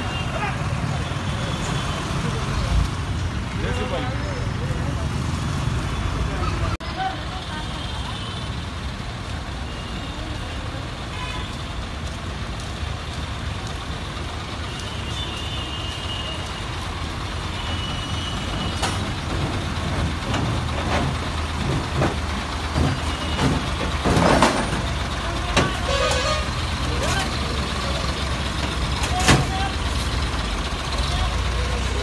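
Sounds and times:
truck engine running at low revs: 18.4s - 32.0s
metal knocks and clanks: 18.6s - 26.3s.

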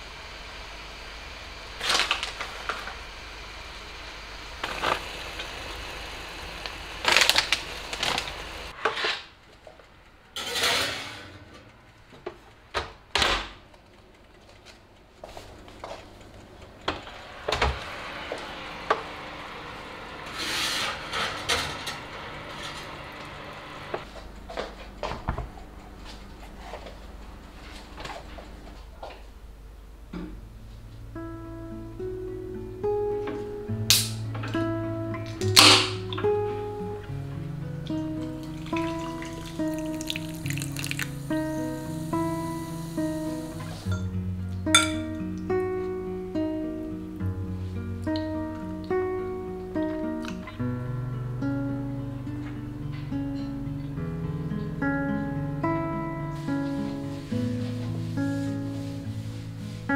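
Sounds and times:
low steady hiss: 27.0s - 59.9s
pan and utensils clinking: 43.6s - 44.1s, 44.7s - 45.2s.

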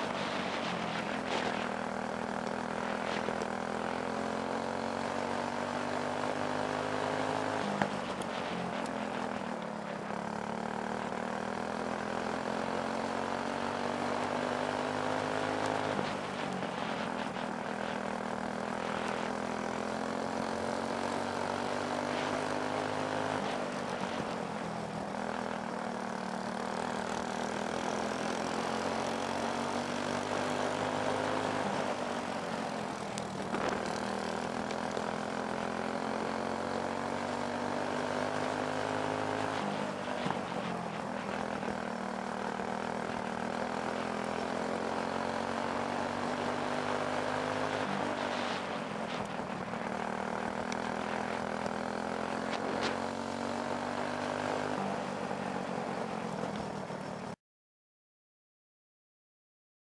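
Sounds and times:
kart engine revving: 26.1s - 54.8s.

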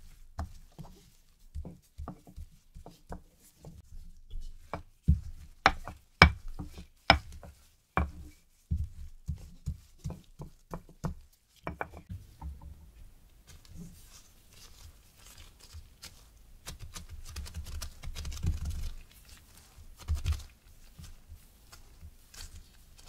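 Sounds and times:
rolling pin knocking on dough: 1.5s - 3.3s, 4.7s - 12.7s.

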